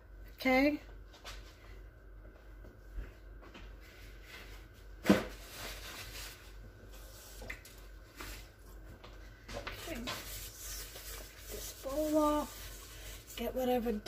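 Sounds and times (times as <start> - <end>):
paper towel squeaking in metal bowl: 9.9 - 13.4.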